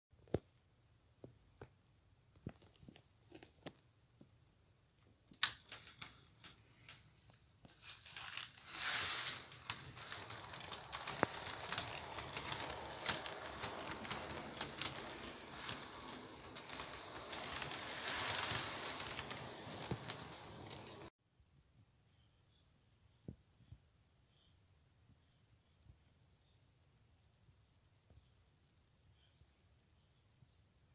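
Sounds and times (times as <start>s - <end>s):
wheels clicking on rails: 8.8s - 21.1s
model train rumbling: 10.0s - 21.1s.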